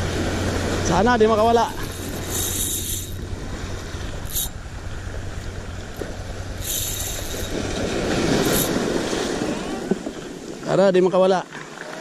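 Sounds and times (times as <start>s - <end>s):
waves washing over pebbles: 0.0s - 10.8s
short hissing bursts: 1.8s - 3.2s, 6.6s - 7.8s.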